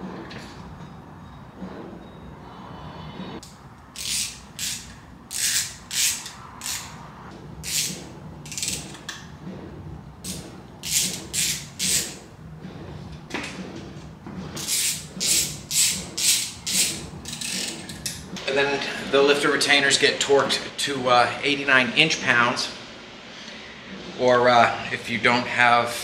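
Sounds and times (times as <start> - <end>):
ratchet wrench clicking: 3.4 - 7.0, 7.6 - 9.1, 10.8 - 12.2, 14.6 - 18.1.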